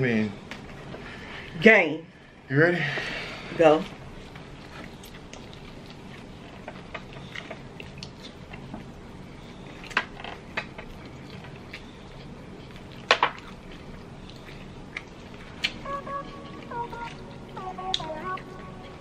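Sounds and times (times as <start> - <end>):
eating clicks and smacks: 4.7 - 9.0, 9.7 - 15.8.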